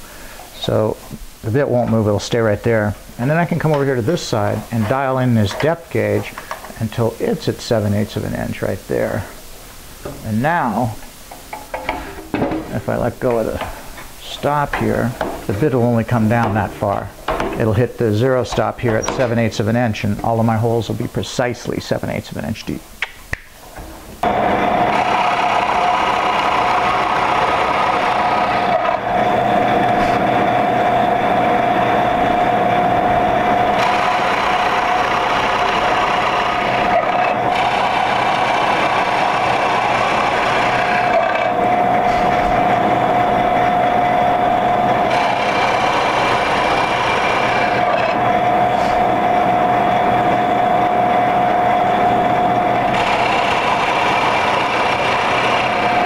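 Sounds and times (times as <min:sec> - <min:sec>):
drill bit boring wood: 0:24.2 - 0:56.0
drill press motor whine: 0:24.2 - 0:56.0.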